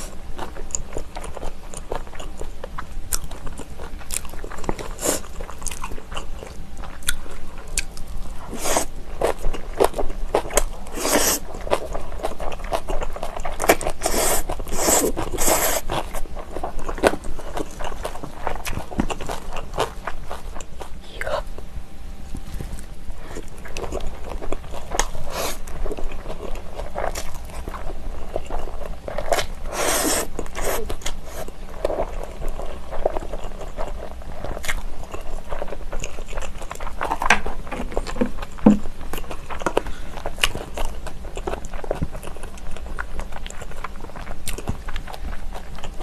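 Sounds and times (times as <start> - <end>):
chewing with wet mouth clicks: 0.4 - 8.1, 22.7 - 46.0
noodle slurp: 14.0 - 15.9, 29.7 - 30.9.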